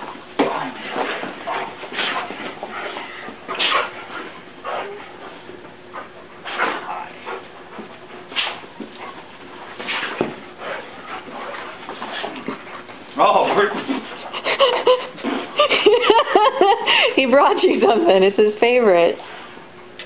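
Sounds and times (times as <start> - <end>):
dogs whimpering and whining: 1.5 - 7.5, 13.8 - 15.9.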